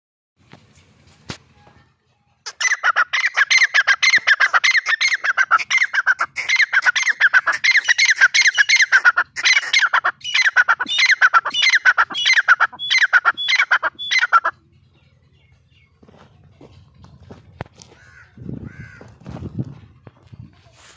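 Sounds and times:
francolin calling: 0:02.5 - 0:14.6.

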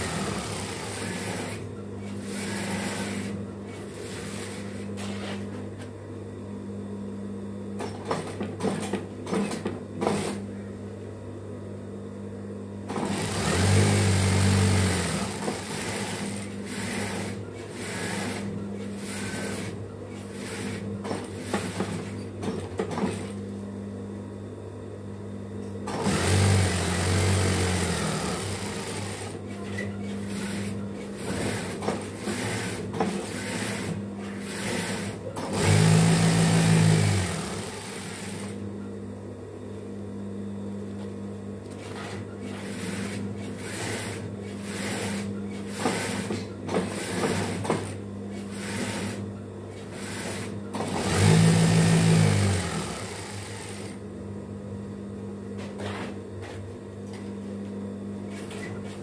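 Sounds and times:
sewing machine stitching: 0:00.0 - 0:03.4, 0:12.9 - 0:20.8, 0:25.9 - 0:29.7, 0:30.3 - 0:38.6, 0:49.9 - 0:54.0.

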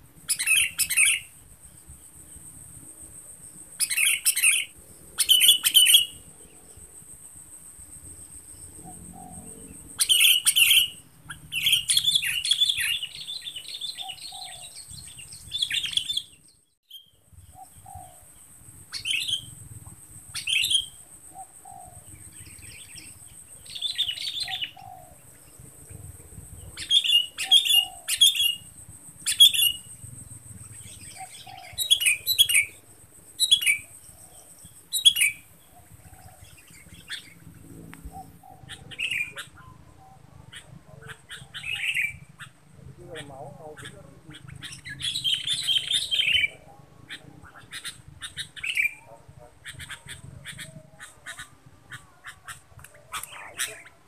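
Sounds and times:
bird chirping: 0:00.2 - 0:54.0.

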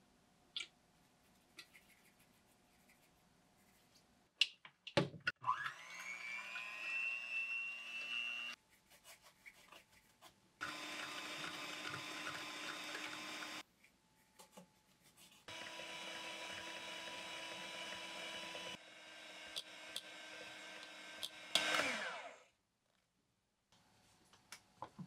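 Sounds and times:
hand mixer whining: 0:05.4 - 0:08.6, 0:10.6 - 0:13.6, 0:15.5 - 0:22.5.

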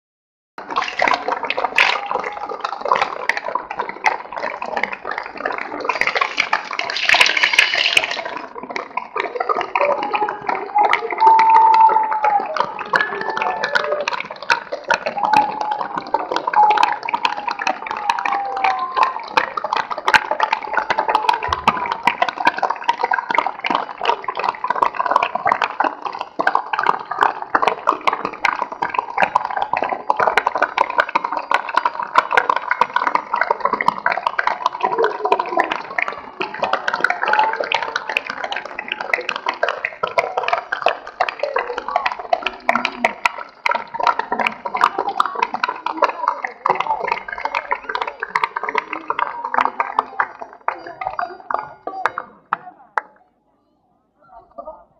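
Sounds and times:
large crowd applauding: 0:00.6 - 0:53.1
voices calling out: 0:05.7 - 0:22.4.

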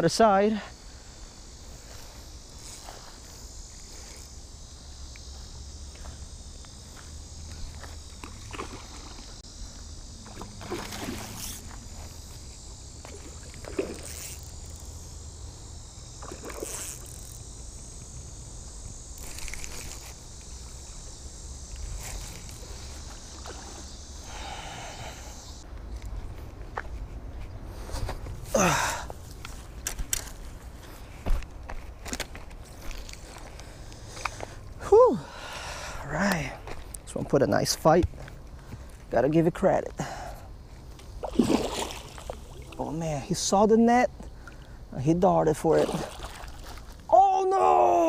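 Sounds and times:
insects buzzing: 0:00.0 - 0:48.0
fish splashing at surface: 0:10.3 - 0:11.5.

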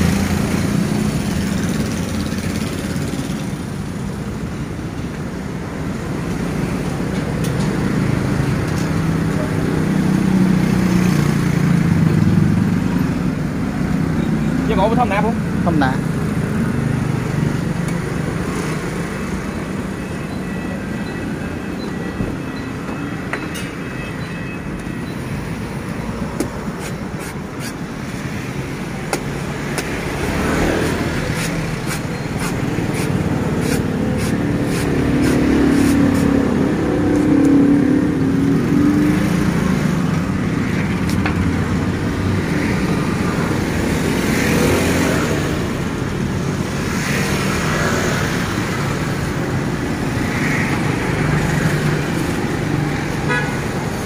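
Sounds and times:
road traffic: 0:00.0 - 0:54.0
cleaver chopping coconut husk: 0:30.8 - 0:36.2.

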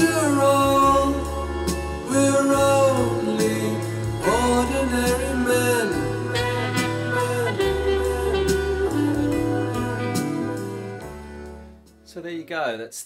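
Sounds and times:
song with singing and bass: 0:00.0 - 0:11.8.

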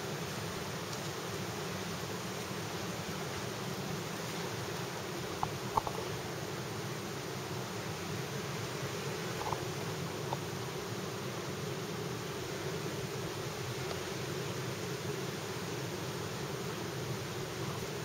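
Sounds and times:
background hiss: 0:00.0 - 0:18.0
faint ticks: 0:00.8 - 0:01.3, 0:05.3 - 0:06.1, 0:09.3 - 0:10.5, 0:13.7 - 0:14.1.

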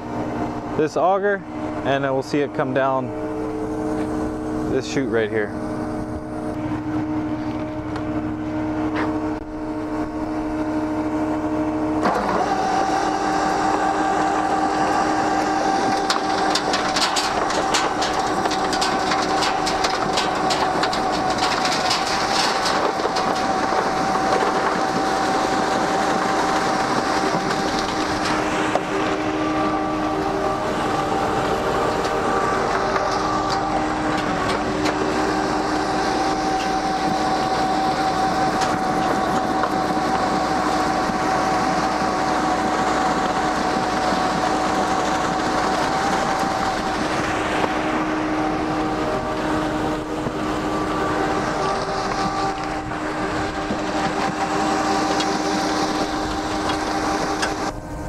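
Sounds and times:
auger whine: 0:00.0 - 0:58.0
mixer truck engine hum: 0:00.0 - 0:58.0
dense rattle: 0:15.6 - 0:30.6.

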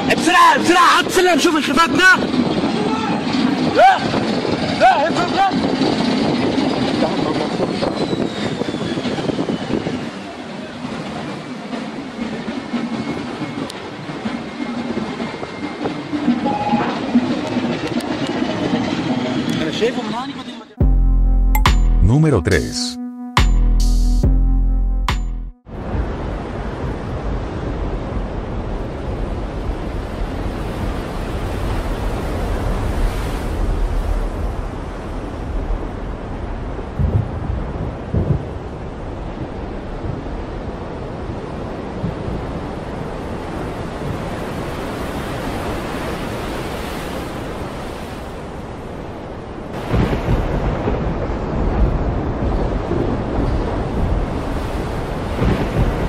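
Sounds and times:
wind buffeting microphone: 0:01.0 - 0:19.2, 0:25.7 - 0:56.0
loud low rumble: 0:20.8 - 0:22.1
sea water churning: 0:25.7 - 0:56.0.

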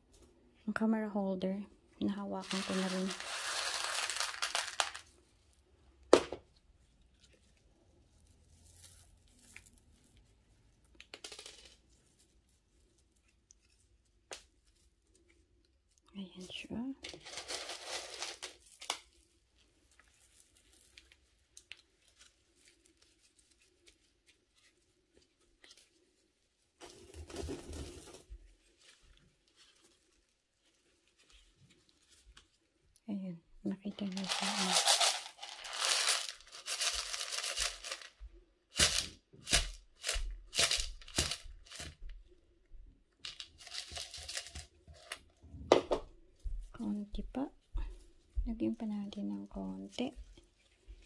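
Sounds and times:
gloved hands rustling soil: 0:02.1 - 0:05.7, 0:06.5 - 0:10.9, 0:17.0 - 0:32.9, 0:33.9 - 0:42.0, 0:43.3 - 0:45.3, 0:50.0 - 0:51.0
gravel pouring onto soil: 0:02.4 - 0:05.1, 0:34.1 - 0:38.1.

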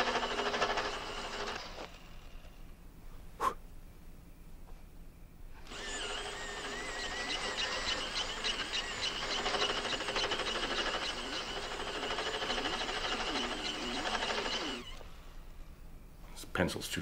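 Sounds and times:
electric pencil sharpener whirring: 0:00.0 - 0:02.5, 0:05.6 - 0:15.3.

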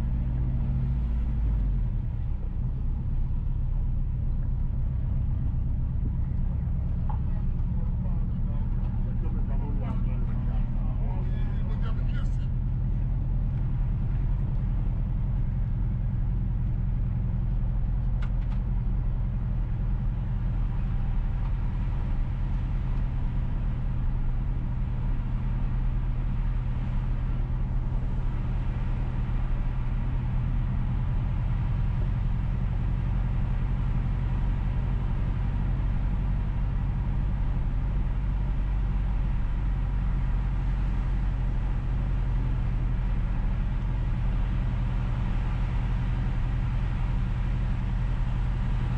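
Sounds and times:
car driving on paved road: 0:00.0 - 0:48.9
faint click: 0:18.0 - 0:18.6.

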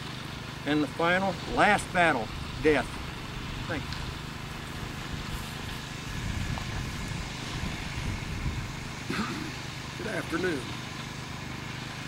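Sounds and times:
low rumble and hum: 0:01.6 - 0:10.2.

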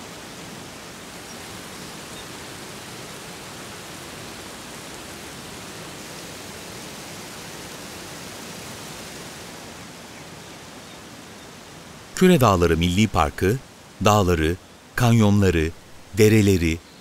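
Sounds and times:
small waterfall splashing into pool: 0:00.0 - 0:09.7.

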